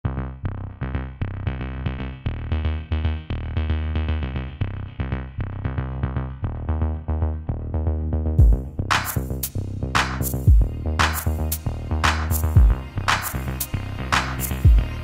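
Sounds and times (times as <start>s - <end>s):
strong bass: 0.0s - 15.0s
drum machine beat: 8.4s - 15.0s.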